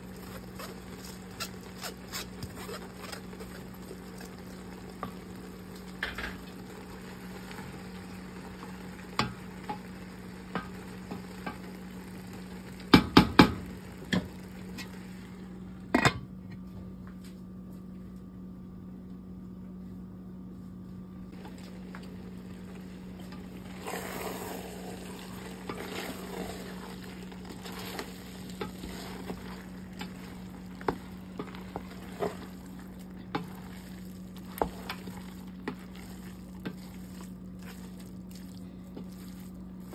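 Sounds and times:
steady low hum: 0.0s - 39.9s
spatula scraping a metal pot: 23.7s - 27.0s.

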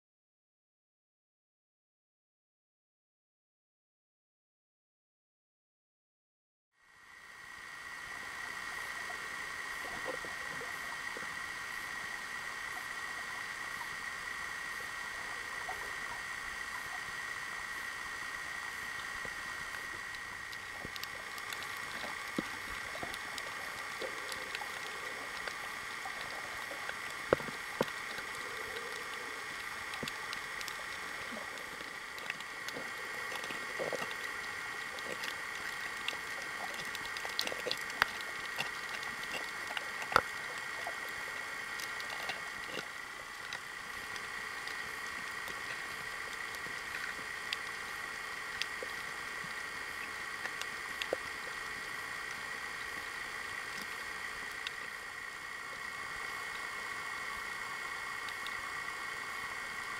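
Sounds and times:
high even hum: 6.8s - 59.9s
underwater hiss: 6.9s - 59.9s
sharp clicks and crackles: 18.2s - 59.9s.

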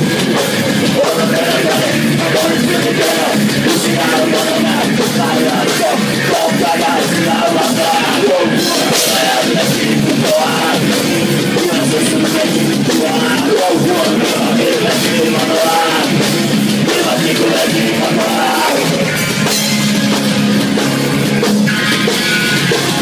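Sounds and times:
rock band playing loud: 0.0s - 23.0s.

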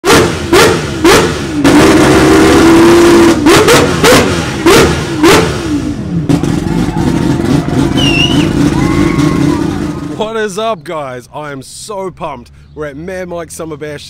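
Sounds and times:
rotary engine revving: 0.0s - 10.4s.

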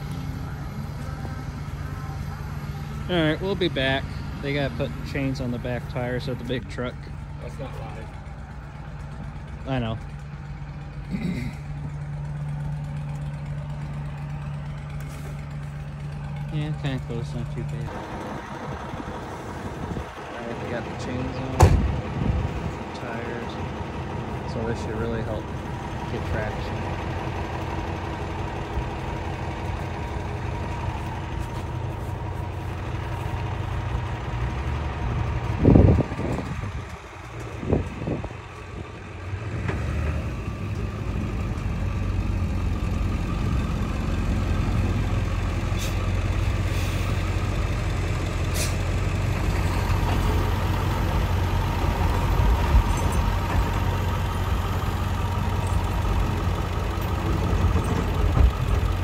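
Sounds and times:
truck engine idling: 0.0s - 59.0s
loud low thump: 21.6s - 22.1s.

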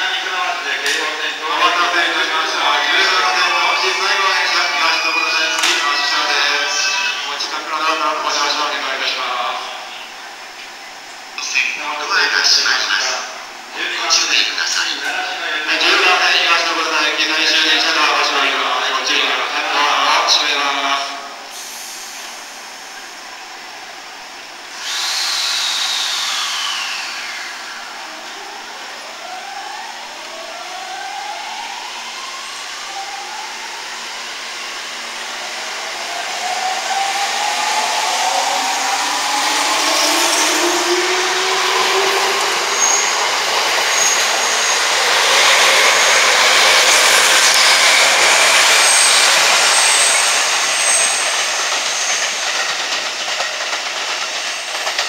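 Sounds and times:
wheel and rail noise: 32.9s - 55.0s
train motors whining: 36.7s - 55.0s.

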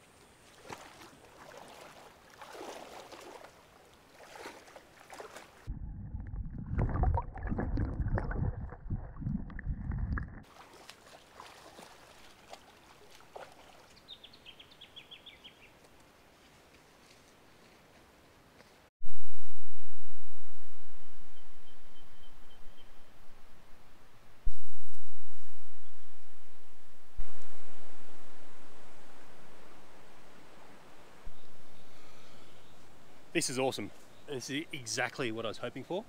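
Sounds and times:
water splashing under wading feet: 0.2s - 5.7s, 6.4s - 14.1s
rustles: 15.7s - 18.9s.

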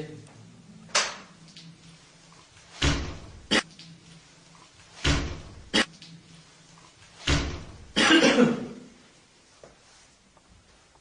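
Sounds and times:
door closing thuds: 2.8s - 3.5s, 5.0s - 5.7s, 7.2s - 8.0s.

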